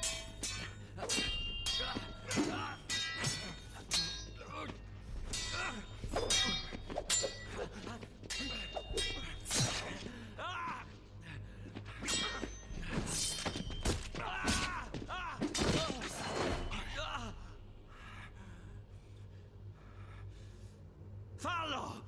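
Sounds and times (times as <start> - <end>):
swords clashing: 0.0 - 10.9, 12.0 - 17.1
fighters grunting: 0.4 - 6.8.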